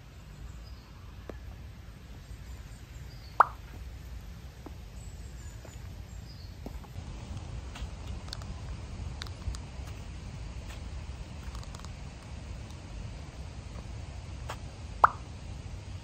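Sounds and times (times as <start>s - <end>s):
low steady rumble: 0.0s - 16.0s
faint high bird chirps: 2.2s - 3.7s.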